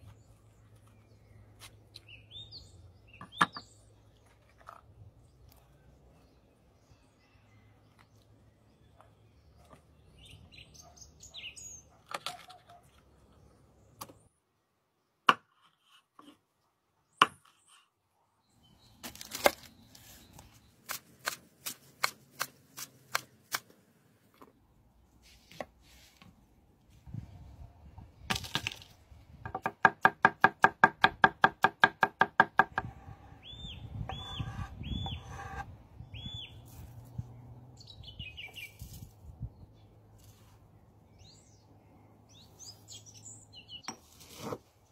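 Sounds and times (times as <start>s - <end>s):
birds chirping: 32.8s - 40.0s.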